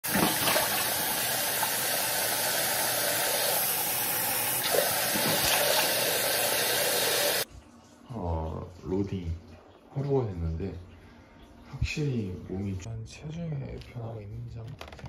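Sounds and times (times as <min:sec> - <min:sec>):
tap water running into sink: 0:00.0 - 0:07.4
water splashing on face: 0:04.6 - 0:06.1.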